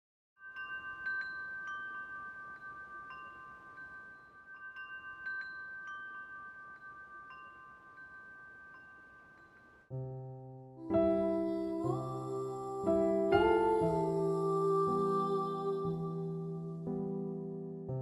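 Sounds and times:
metal wind chime ringing: 0.4 - 9.9.

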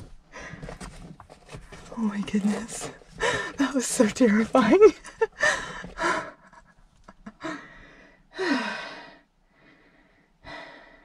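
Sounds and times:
woman breathing hard: 3.2 - 3.6, 5.4 - 6.7, 7.4 - 11.0.

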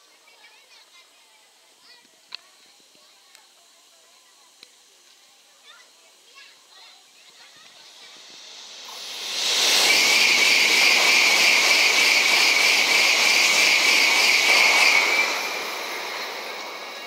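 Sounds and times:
train high whine: 5.9 - 17.0
high-speed train rushing past: 7.2 - 17.0.

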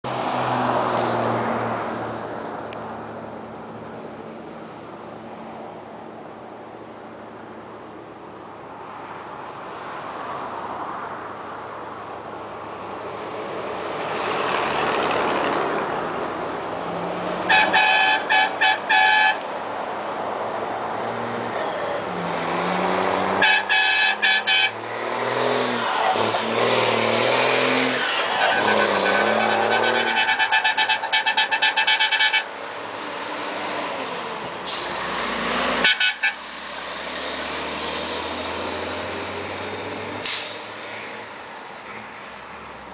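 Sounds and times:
car horn short honks: 17.5 - 19.4, 23.4 - 24.8, 35.8 - 36.4
car engine revving: 22.2 - 31.1.

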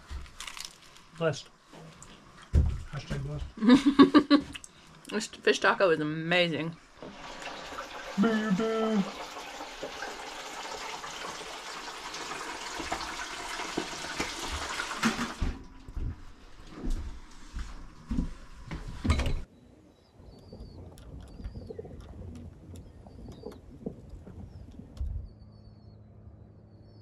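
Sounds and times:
bird chirping: 19.5 - 27.0.

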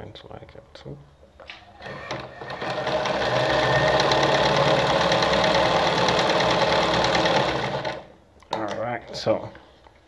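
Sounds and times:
sewing machine stitching: 1.8 - 8.1.

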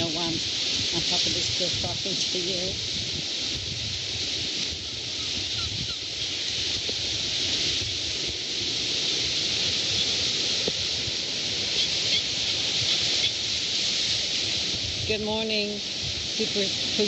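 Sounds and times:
rushing wind: 0.0 - 17.0
surf washing: 0.0 - 17.0
wind buffeting microphone: 0.0 - 17.0.

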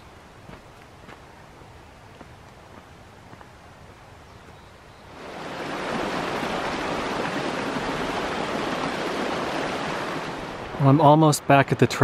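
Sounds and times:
creek splashing over rocks: 5.1 - 11.0.

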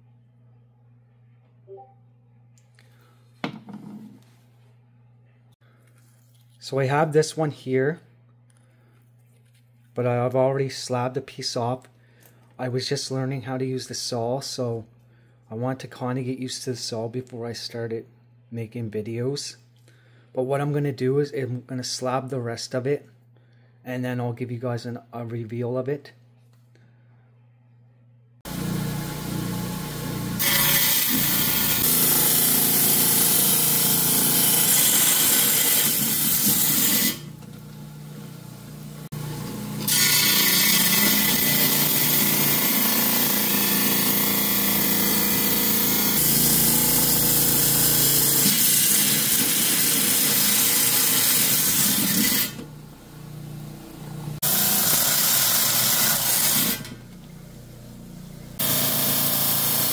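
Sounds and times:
saw motor hum: 28.5 - 59.9
wet saw cutting stone hiss: 54.4 - 56.9, 58.6 - 59.9.

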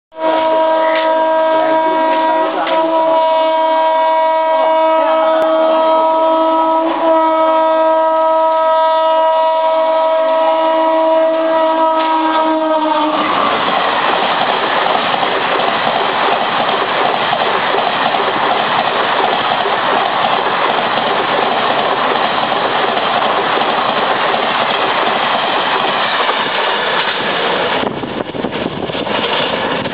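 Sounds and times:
locomotive horn blast: 0.1 - 13.6
rush of passing train coaches: 0.2 - 29.9.

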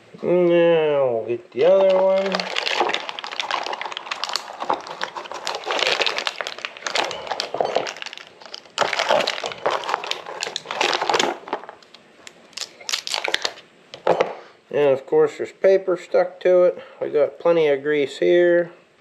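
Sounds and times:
plastic bag crinkling: 1.6 - 13.6.

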